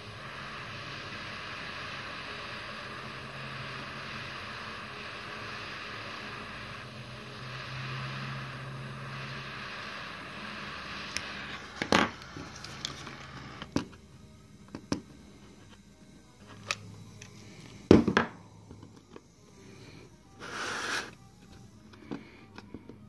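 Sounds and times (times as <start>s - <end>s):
handheld torch hissing: 0.0s - 23.0s.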